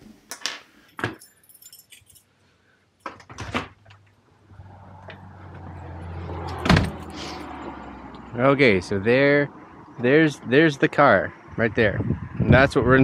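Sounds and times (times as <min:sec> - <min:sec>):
outdoor noise: 0:00.0 - 0:13.0
car keys jangling: 0:00.9 - 0:02.4
loud thump: 0:06.6 - 0:07.0.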